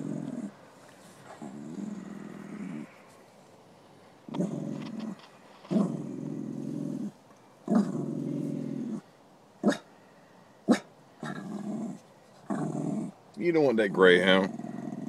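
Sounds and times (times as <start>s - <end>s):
dog growling: 0.0s - 3.1s, 4.3s - 9.9s, 10.7s - 13.2s, 14.0s - 15.0s
dog barking: 9.6s - 9.9s, 10.7s - 10.9s.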